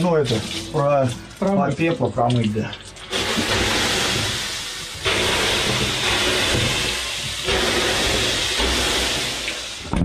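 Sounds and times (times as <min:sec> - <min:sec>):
water dashed onto hot stones: 0:00.0 - 0:10.0
steam hissing: 0:03.1 - 0:09.9.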